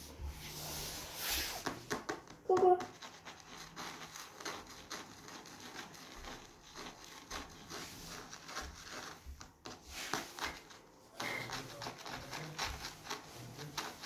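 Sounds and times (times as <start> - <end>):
handling rustling and scraping: 2.9 - 14.0.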